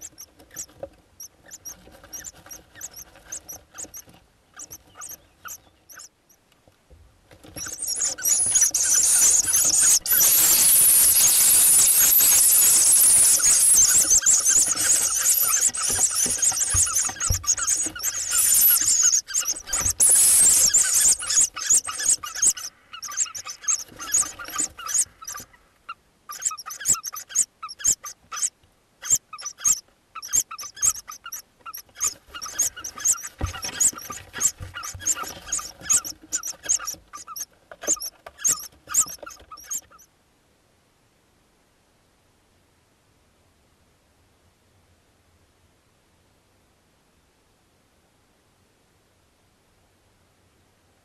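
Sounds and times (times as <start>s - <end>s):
nestlings squealing calls: 0.0s - 6.2s, 7.5s - 40.0s.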